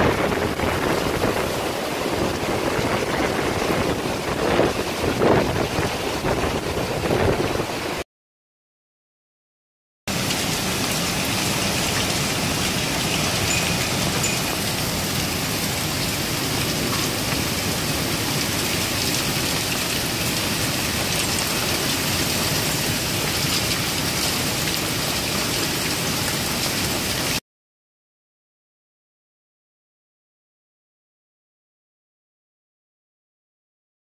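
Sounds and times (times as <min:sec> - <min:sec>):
heavy rain pouring: 0:00.0 - 0:08.0, 0:10.1 - 0:27.4.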